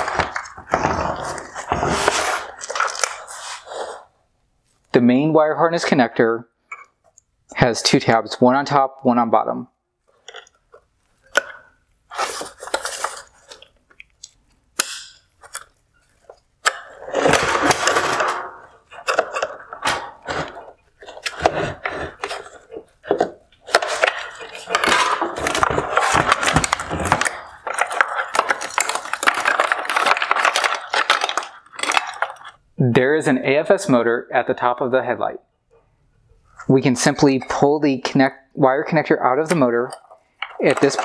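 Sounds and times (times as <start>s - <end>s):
plastic rattling and scraping: 0.0s - 4.1s, 10.1s - 14.1s, 15.4s - 32.6s, 39.6s - 41.0s.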